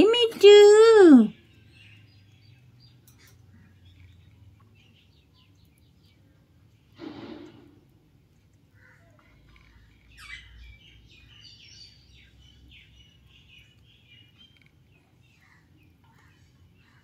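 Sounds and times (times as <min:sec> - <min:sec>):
parakeet chirping: 0:09.5 - 0:14.7.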